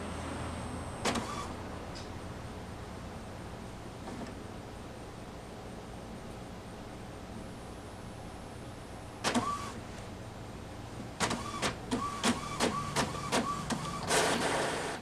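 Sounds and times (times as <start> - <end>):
inkjet printer feeding paper: 1.0 - 1.5, 9.2 - 9.8, 11.2 - 15.0.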